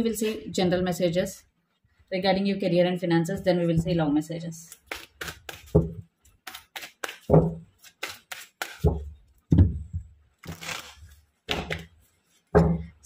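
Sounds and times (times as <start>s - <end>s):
cards clacking while shuffled: 4.8s - 9.1s
cards sliding: 6.5s - 8.9s.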